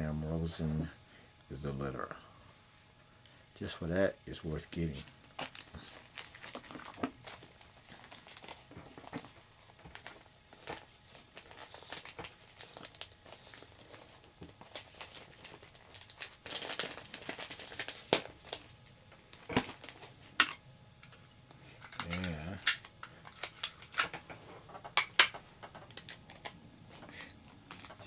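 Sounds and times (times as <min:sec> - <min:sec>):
plastic bag crinkling: 0:04.9 - 0:21.1, 0:21.8 - 0:24.8, 0:25.6 - 0:28.0.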